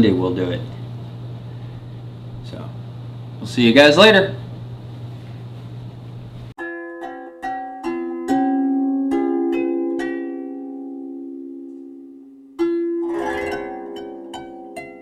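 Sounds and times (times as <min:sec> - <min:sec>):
plucked string melody: 0:06.6 - 0:15.0.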